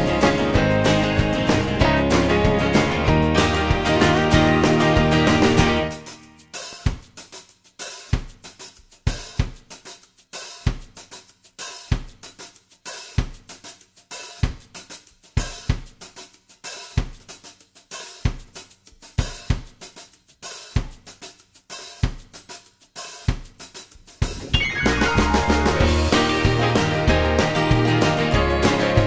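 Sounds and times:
drum-kit beat: 0.0s - 29.0s.

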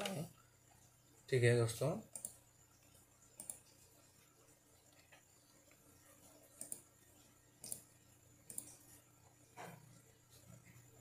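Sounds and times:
computer mouse clicks: 2.1s - 3.8s, 4.8s - 9.8s.

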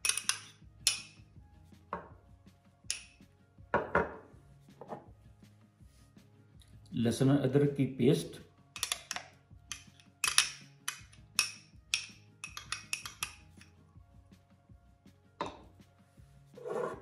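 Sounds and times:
teaspoon clinking on ceramic bowls: 0.0s - 1.2s, 2.9s - 3.2s, 8.8s - 13.7s
faint background music: 0.0s - 17.0s.

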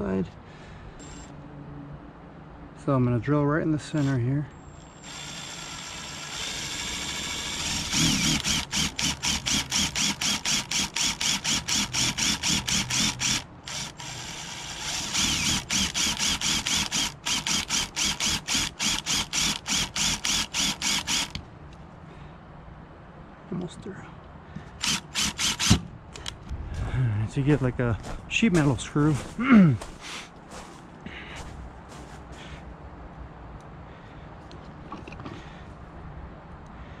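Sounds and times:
cordless drill boring: 4.8s - 21.4s, 24.8s - 26.3s.

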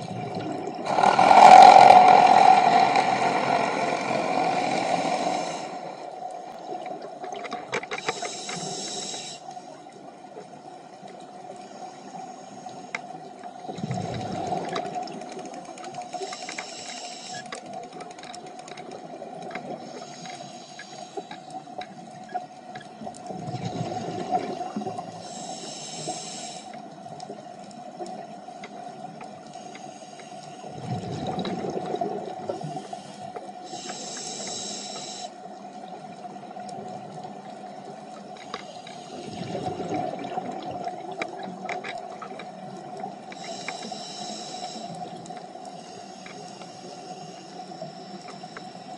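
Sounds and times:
exhaled bubbles rushing: 0.0s - 5.7s, 30.8s - 32.6s, 39.1s - 42.3s
regulator inhalation hiss: 0.9s - 6.2s, 8.0s - 9.8s, 16.0s - 17.5s, 19.8s - 21.5s, 25.0s - 26.8s, 29.5s - 30.7s, 32.5s - 35.6s, 43.3s - 48.9s.

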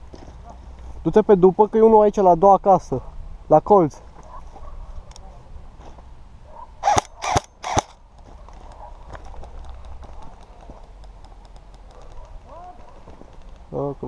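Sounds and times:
airsoft gun shots: 6.8s - 8.0s.

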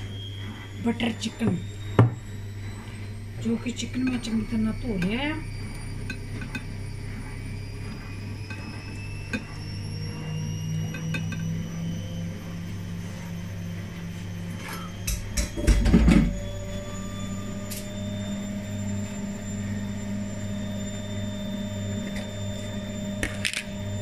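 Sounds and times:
low hum: 0.0s - 24.0s.

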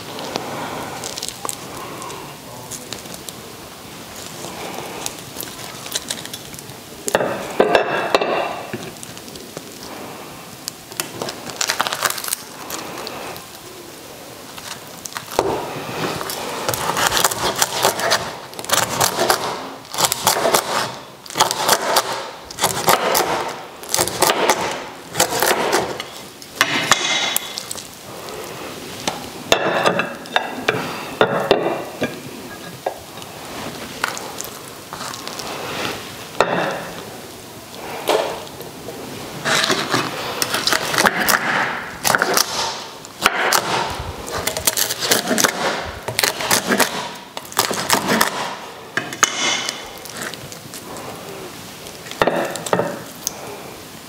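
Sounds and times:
pork crackling crunching under knife: 0.1s - 3.4s, 4.1s - 7.7s, 10.6s - 13.6s, 14.5s - 28.4s, 32.5s - 35.5s, 39.4s - 50.9s.

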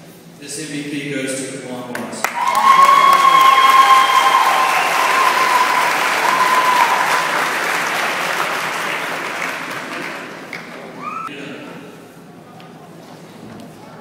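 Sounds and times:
audience applauding: 2.2s - 11.2s
high held cheer: 2.2s - 11.3s.

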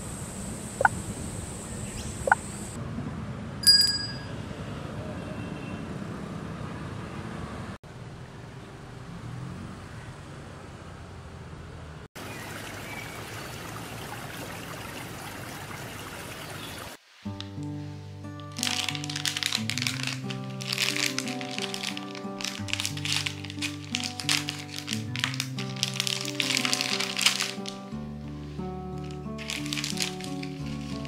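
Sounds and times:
outdoor background hiss: 0.0s - 2.8s, 12.2s - 31.0s
short high ring: 3.6s - 4.4s.

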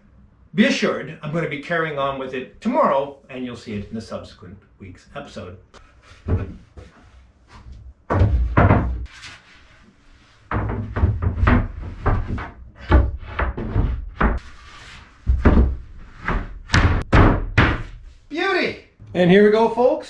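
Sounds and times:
wooden panels knocking and scraping: 5.8s - 18.2s.

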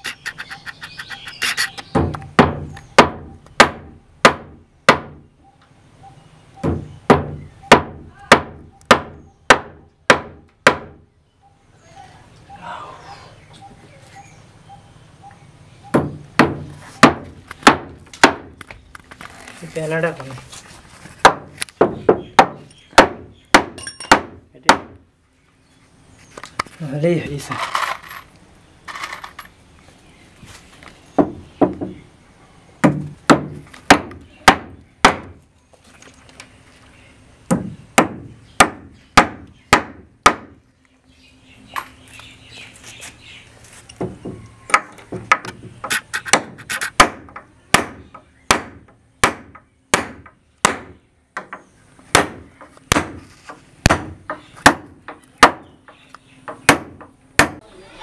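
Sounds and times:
hammer strikes on hinge: 6.6s - 11.0s, 21.2s - 25.0s.

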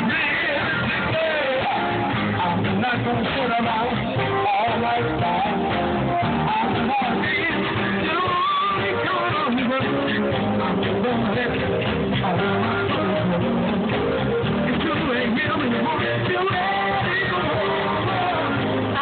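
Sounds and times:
live band playing: 0.0s - 19.0s
person singing: 0.0s - 19.0s.

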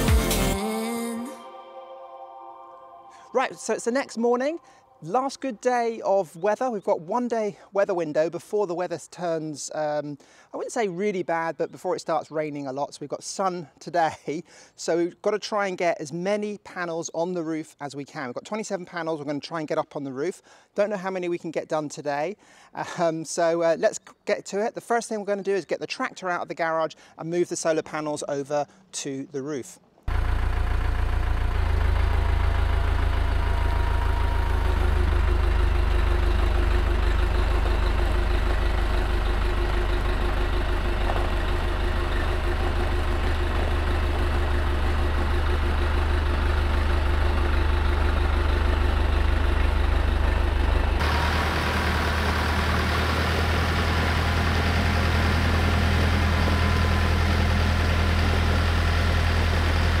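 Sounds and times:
tractor engine running: 30.0s - 60.0s.

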